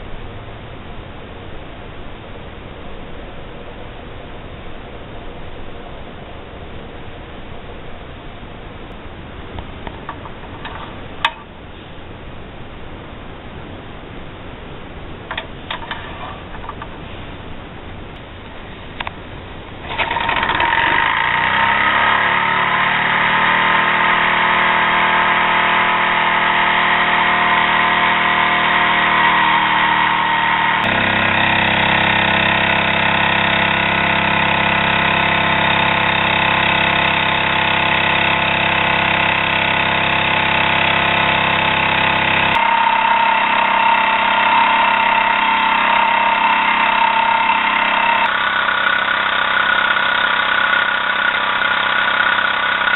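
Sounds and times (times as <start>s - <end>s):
toy steam engine whirring: 19.9s - 52.9s.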